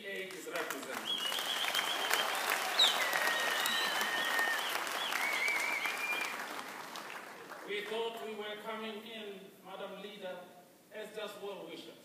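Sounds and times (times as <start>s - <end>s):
audience applauding: 0.4s - 7.9s
high whistle-like tones: 1.1s - 6.4s.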